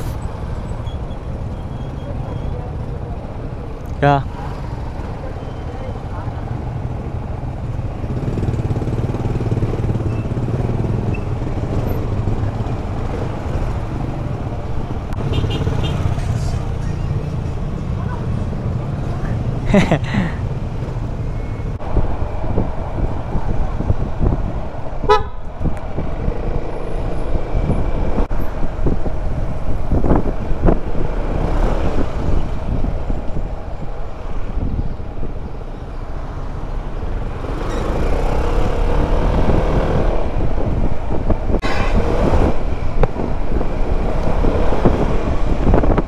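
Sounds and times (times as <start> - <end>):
passing traffic: 0.0 - 46.0
vehicle horn toot: 15.2 - 16.1, 25.1 - 25.5
wind rumble on microphone: 21.8 - 46.0.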